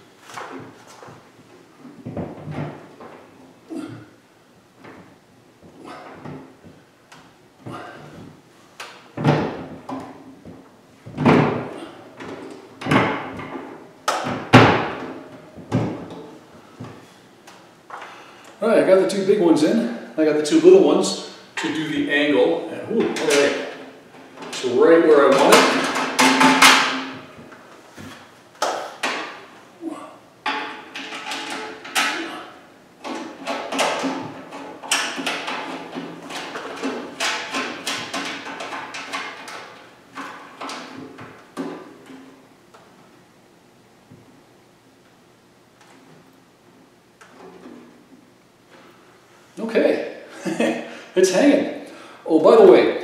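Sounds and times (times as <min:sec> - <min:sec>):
sharp metal clanks and knocks: 0:25.3 - 0:27.3, 0:30.4 - 0:41.0.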